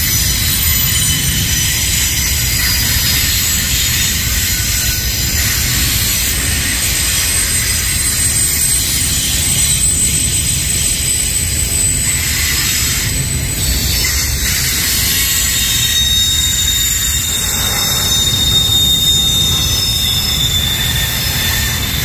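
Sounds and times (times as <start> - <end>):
train wheels rumbling on rail: 0.0 - 22.0
high hiss: 14.6 - 22.0
thin steady high tone: 14.9 - 22.0.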